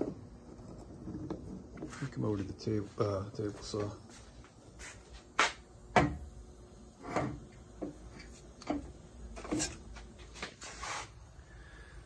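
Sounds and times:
heavy motor clunking on table: 0:05.9 - 0:06.3.

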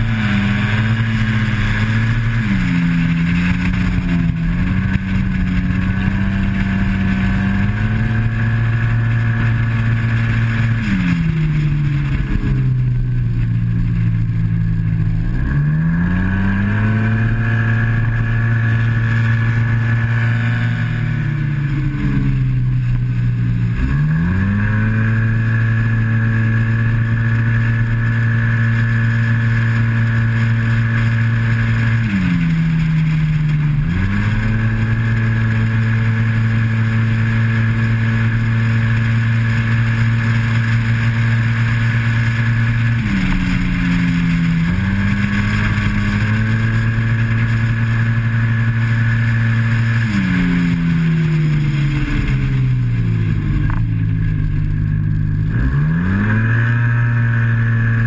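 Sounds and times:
wind rush: 0:00.0 - 0:26.6
scooter engine at full throttle: 0:00.0 - 0:58.0.

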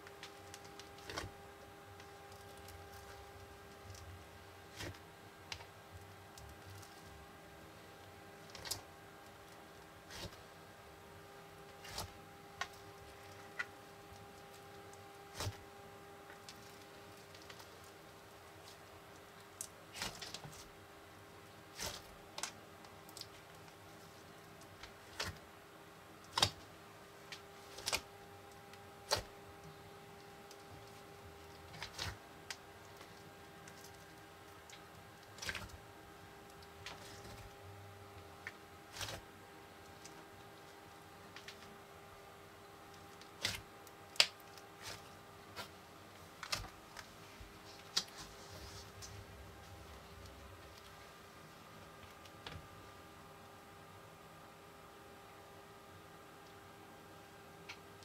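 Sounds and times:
slime crackling and popping: 0:43.2 - 0:45.0.

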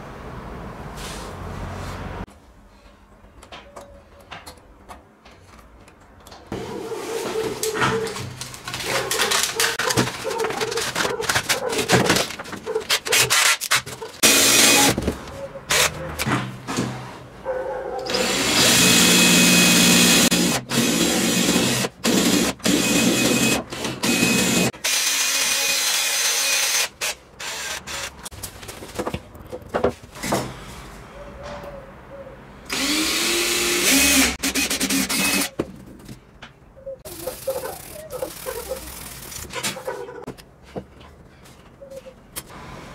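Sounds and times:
handling scrapes and clicks: 0:05.3 - 0:14.2
cordless drill whining: 0:14.2 - 0:15.0, 0:18.1 - 0:28.1, 0:32.7 - 0:35.5.

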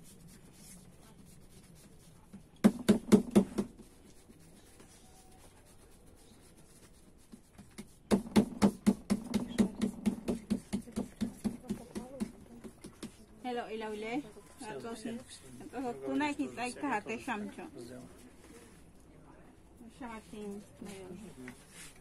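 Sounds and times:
hands patting dough: 0:00.0 - 0:13.3.

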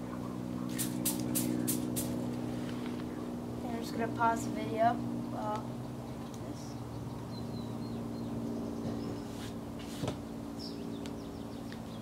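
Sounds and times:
low machine hum: 0:00.0 - 0:12.0
bird chirps: 0:05.2 - 0:09.4, 0:10.6 - 0:12.0.

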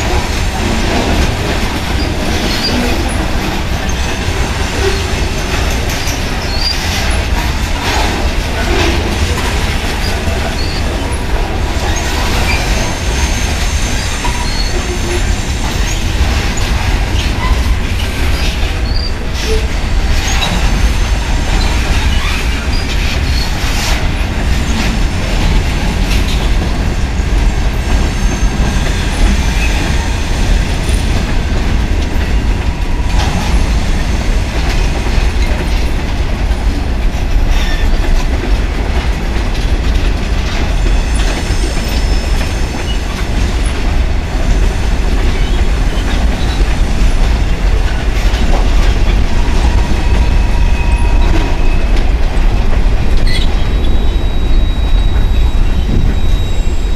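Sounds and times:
train wheels rumbling on rail: 0:00.0 - 0:56.9
faint wheel squeal: 0:53.3 - 0:56.9.

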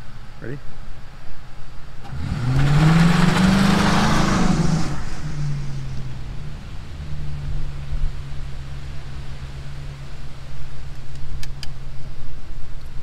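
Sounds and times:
tyres hissing on wet road: 0:02.0 - 0:11.1
car engine accelerating: 0:02.0 - 0:13.0.

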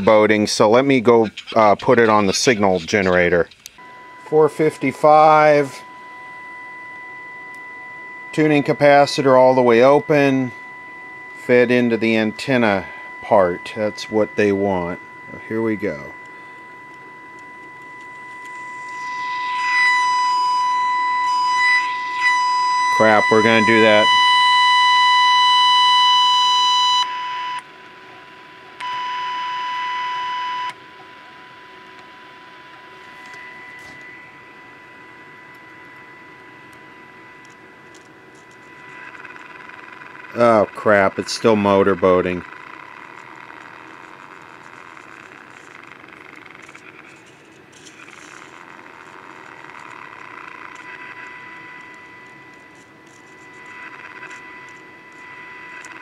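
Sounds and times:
radio test tone beep: 0:00.0 - 0:56.0.

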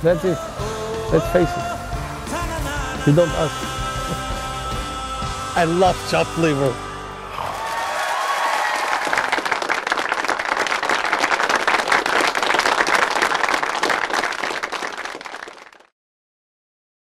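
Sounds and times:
crowd applauding: 0:07.1 - 0:15.9.

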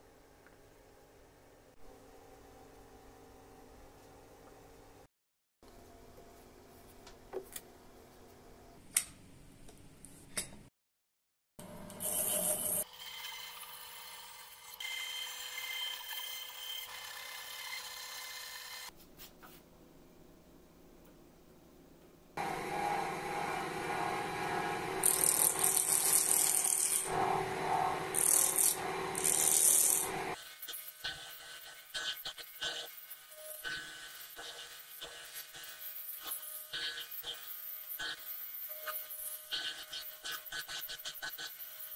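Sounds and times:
wood lathe spinning: 0:12.8 - 0:18.9, 0:22.4 - 0:30.4
band saw cutting wood: 0:22.4 - 0:33.0
gouge scraping wood: 0:28.1 - 0:30.2.

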